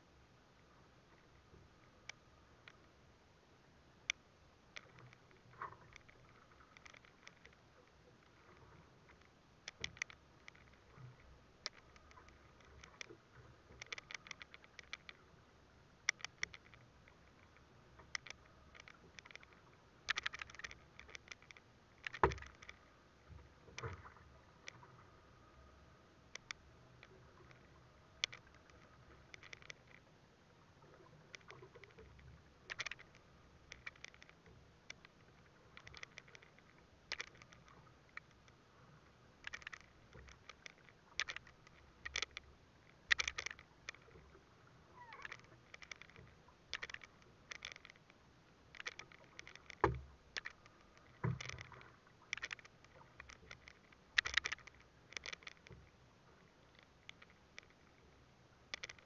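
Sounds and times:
water lapping against boat hull: 4.7 - 59.0.

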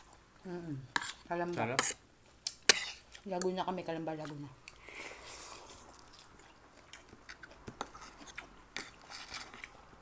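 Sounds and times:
close chewing of food: 4.2 - 10.0.

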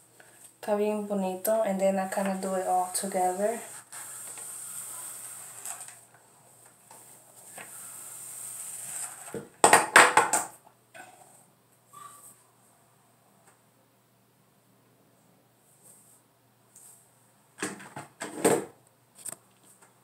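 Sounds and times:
hair rustling through flat iron: 1.5 - 9.4.

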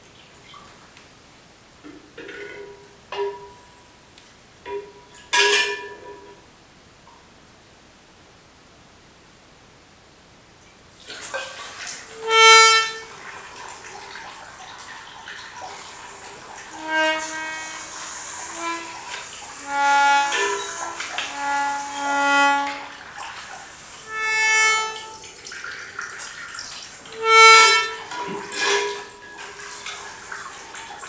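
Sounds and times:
faint hiss: 6.4 - 31.0
reedy instrument notes: 11.3 - 14.4, 15.4 - 31.0.

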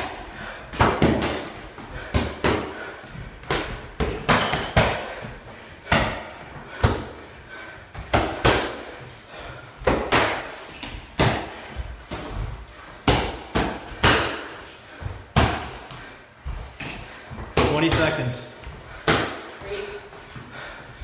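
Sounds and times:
boxing gloves slapping pads: 0.0 - 7.2, 7.9 - 9.0, 9.8 - 12.4, 13.0 - 14.6, 15.3 - 16.0, 18.9 - 19.6.

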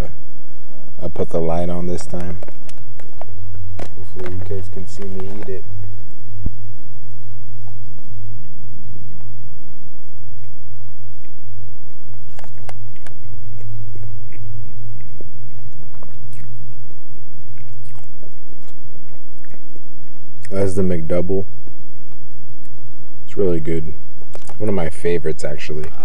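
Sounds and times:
steady low hum: 0.0 - 26.0
mouth clicks and smacks: 12.2 - 16.8, 17.5 - 20.6, 24.3 - 24.6
person chewing burger: 12.3 - 16.8, 17.5 - 19.7.

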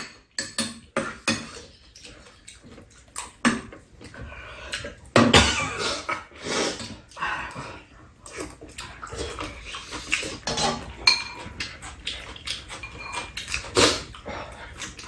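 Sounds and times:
people chewing and slurping: 0.0 - 15.0
utensils clicking against bowls: 10.4 - 13.8.

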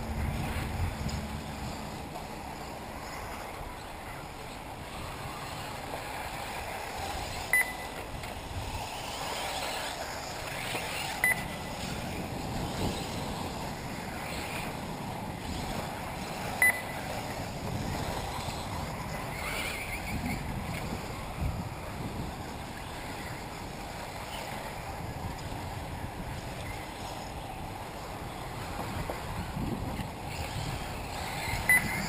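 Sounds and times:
electric rc buggies running: 0.0 - 32.0
outdoor noise haze: 0.0 - 32.0
wind on microphone: 0.0 - 32.0
short high beeps: 7.5 - 8.0, 11.2 - 11.6, 16.6 - 17.0, 31.7 - 32.0.

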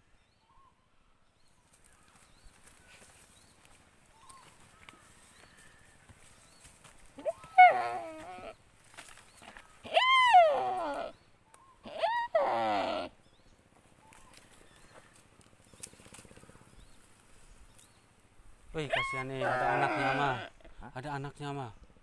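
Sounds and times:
deer distress bleats: 7.2 - 8.6, 9.8 - 11.2, 11.8 - 13.2, 18.9 - 20.7.

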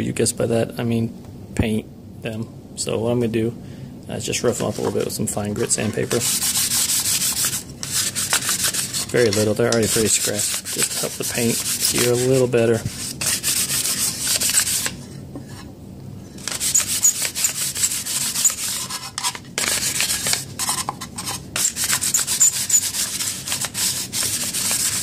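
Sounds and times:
sandpaper rasping on metal: 5.6 - 15.0, 16.4 - 25.0.

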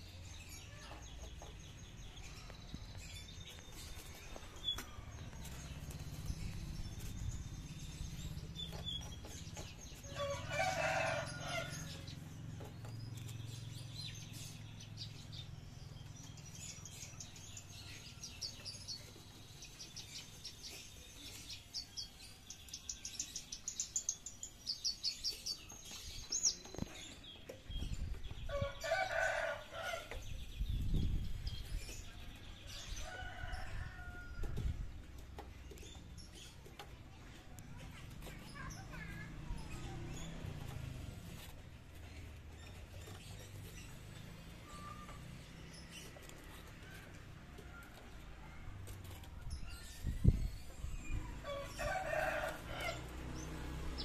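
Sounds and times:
rooster crowing: 10.2 - 12.0, 51.4 - 53.1.

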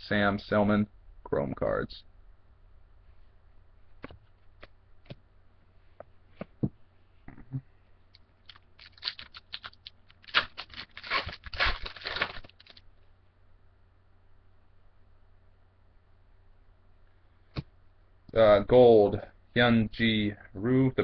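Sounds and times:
foil wrapper crinkling and tearing: 8.4 - 12.8.

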